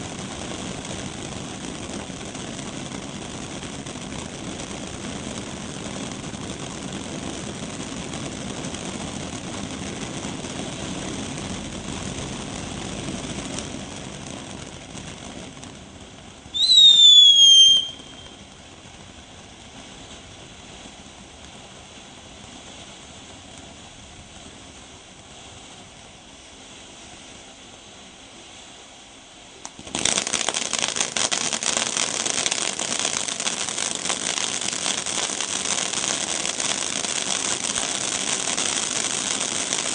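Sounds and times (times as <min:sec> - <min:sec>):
firework fountain hissing: 0:00.0 - 0:39.9
loud dense firework crackling: 0:00.0 - 0:39.9
firework whistle falling in pitch: 0:16.5 - 0:18.4.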